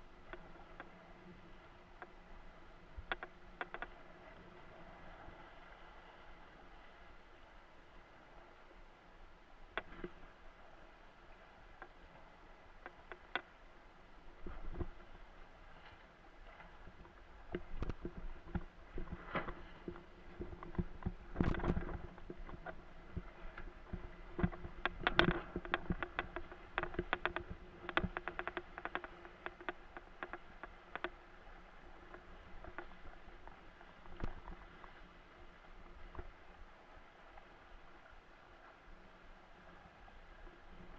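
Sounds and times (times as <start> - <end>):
board slapping on choppy water: 14.2 - 37.4.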